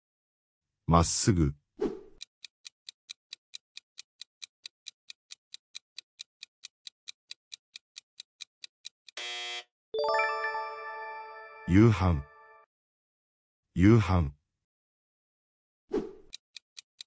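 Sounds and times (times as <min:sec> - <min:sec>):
clock-like ticking: 0:02.2 - 0:09.2, 0:16.2 - 0:17.0
bell-like chime: 0:10.0 - 0:12.6.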